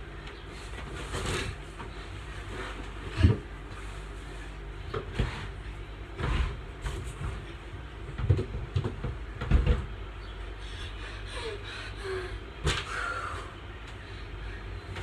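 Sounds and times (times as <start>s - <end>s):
rustling of bedding: 0.4s - 10.0s.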